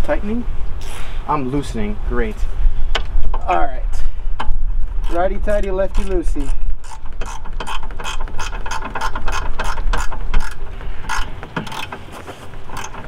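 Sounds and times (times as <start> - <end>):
ratchet wrench clicking: 4.4 - 12.0, 12.7 - 13.0.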